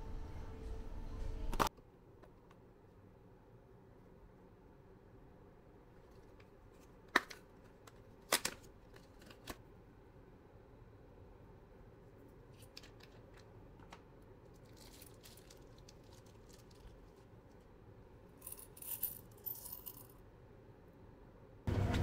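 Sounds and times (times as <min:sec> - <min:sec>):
small hard objects rattling: 0:14.5 - 0:17.2.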